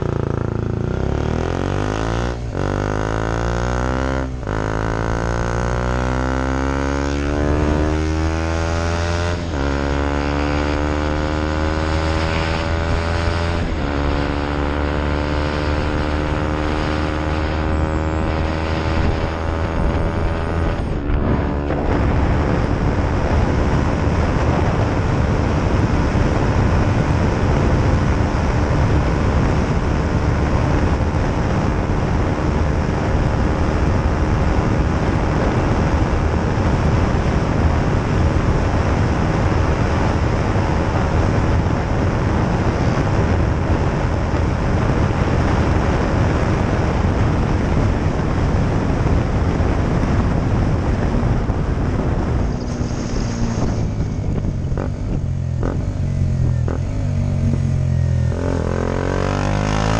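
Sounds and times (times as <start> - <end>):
motorcycle engine cruising: 0.0 - 59.9
wind rushing over microphone: 0.0 - 59.9.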